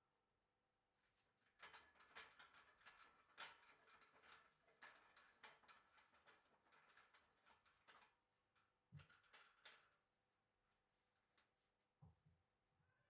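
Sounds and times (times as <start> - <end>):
metal bicycle parts clicking and rattling: 1.6 - 8.1.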